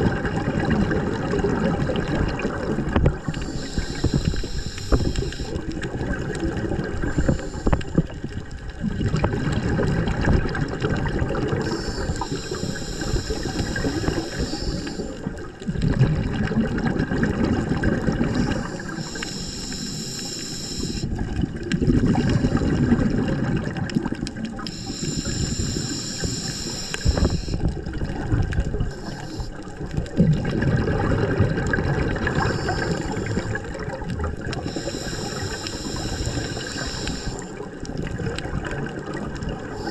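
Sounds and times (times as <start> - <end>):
exhaled air bubbling: 0.0 - 39.9
diver inhaling through regulator: 3.0 - 5.9, 6.5 - 8.3, 11.4 - 15.4, 18.0 - 21.2, 22.1 - 23.1, 24.6 - 27.9, 28.6 - 29.8, 31.7 - 37.8, 39.6 - 39.9.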